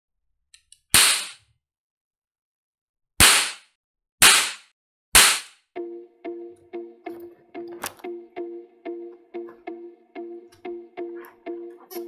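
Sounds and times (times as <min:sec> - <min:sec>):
plucked-string music: 0:05.8 - 0:12.0.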